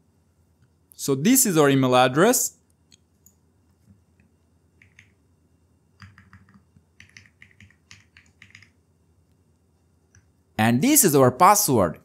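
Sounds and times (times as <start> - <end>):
faint keyboard typing: 2.9 - 5.2, 6.0 - 9.4.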